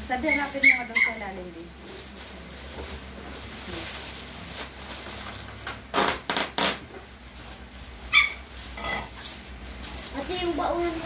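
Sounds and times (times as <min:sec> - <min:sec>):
tape and cardboard ripping: 0:04.6 - 0:07.1.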